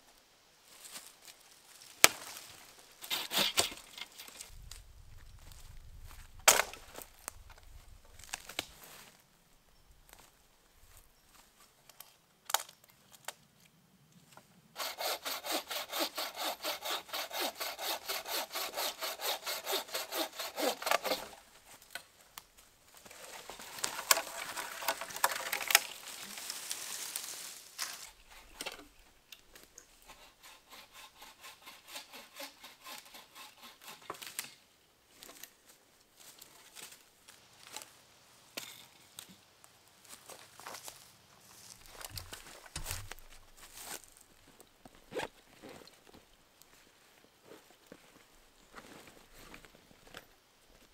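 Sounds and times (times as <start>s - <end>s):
saw cutting a branch: 3.0s - 4.4s, 14.8s - 21.4s, 23.3s - 26.8s, 29.9s - 34.5s.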